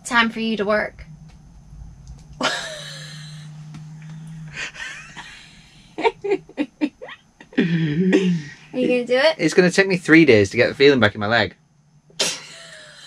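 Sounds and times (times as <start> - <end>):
steady low hum: 0.0 - 13.0
person laughing: 2.4 - 3.4, 4.5 - 6.6, 7.5 - 8.9, 12.2 - 13.0
person gasping: 4.4 - 4.9, 7.6 - 8.8.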